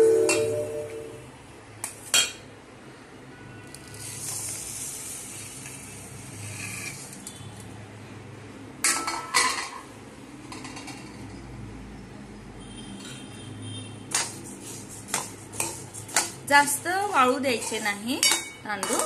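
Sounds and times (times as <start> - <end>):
rice grains sliding into pan: 3.8 - 7.3
steel plate clinking on pan: 17.5 - 19.0.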